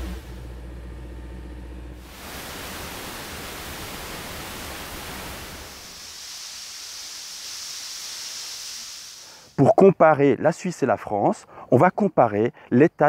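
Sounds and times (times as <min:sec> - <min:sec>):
low engine rumble: 0:00.0 - 0:02.1
water gushing under pressure: 0:02.0 - 0:09.6.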